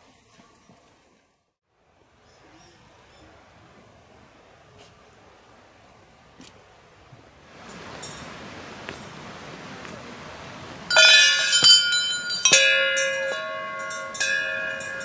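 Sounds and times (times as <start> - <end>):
small metal bells ringing: 10.9 - 15.0.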